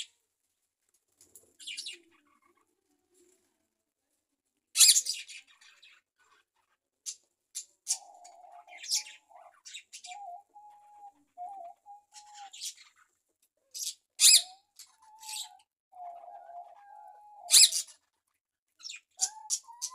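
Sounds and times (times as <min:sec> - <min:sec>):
budgerigars chirping: 0:07.1 - 0:10.2, 0:13.8 - 0:15.6, 0:17.5 - 0:17.9, 0:18.8 - 0:19.9.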